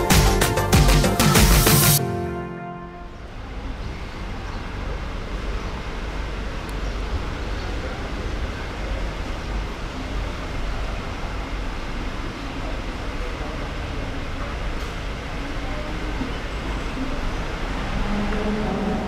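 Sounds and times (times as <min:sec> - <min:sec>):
low traffic rumble: 0:02.8 - 0:19.0
faint voices: 0:07.2 - 0:19.0.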